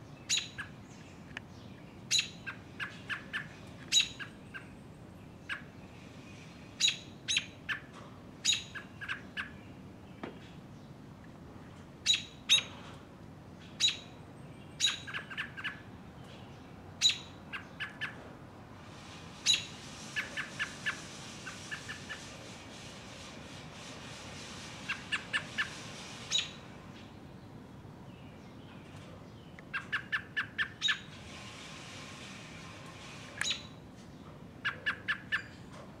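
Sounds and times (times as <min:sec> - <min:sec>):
robin calling: 0:00.1 - 0:10.9, 0:12.0 - 0:12.9, 0:13.6 - 0:18.2, 0:19.4 - 0:22.3, 0:24.9 - 0:27.5, 0:28.1 - 0:31.1, 0:33.4 - 0:35.7
soft hiss: 0:18.6 - 0:27.2.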